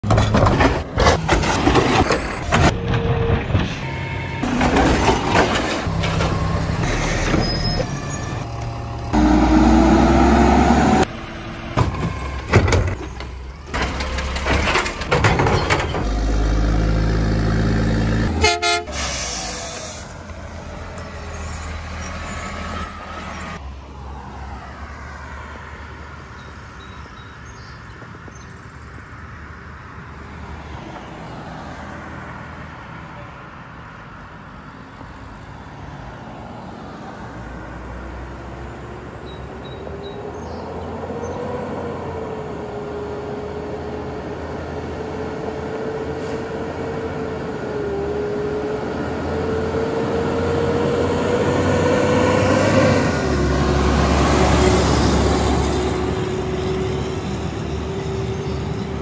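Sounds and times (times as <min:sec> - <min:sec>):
garbage truck engine and machinery: 0:00.0 - 0:23.6, 0:36.4 - 0:59.0
street background noise: 0:00.0 - 0:59.0.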